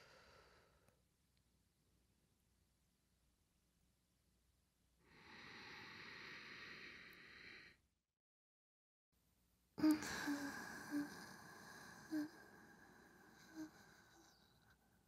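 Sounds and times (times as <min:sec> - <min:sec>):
woman breathy exhale: 0:05.1 - 0:07.8, 0:09.8 - 0:14.5.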